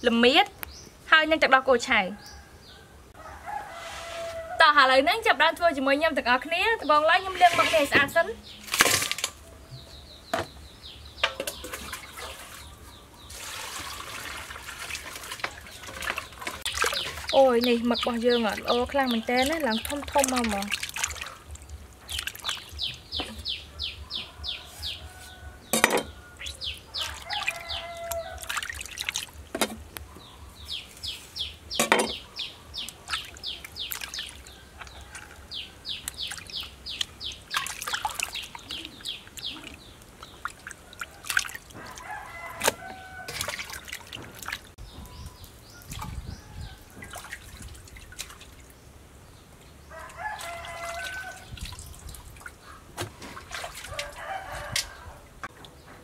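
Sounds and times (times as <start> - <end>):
rooster crowing: 2.2 - 4.7, 24.0 - 28.5, 41.7 - 43.6, 49.9 - 51.4, 53.9 - 55.3
water splashing in metal basin: 7.2 - 9.4, 11.2 - 23.5, 25.7 - 29.9, 32.8 - 44.8, 45.8 - 48.8, 49.9 - 55.8
chickens calling: 9.3 - 48.6, 49.6 - 56.0.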